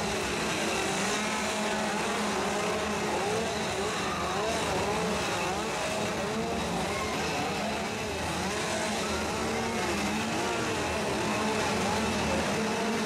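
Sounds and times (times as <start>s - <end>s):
chainsaws revving: 0.0s - 13.0s.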